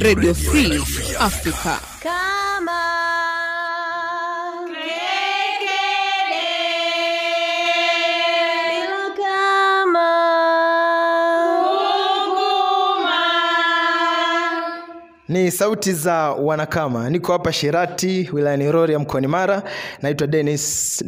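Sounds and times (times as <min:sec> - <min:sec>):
young women singing together: 0:02.0 - 0:15.2.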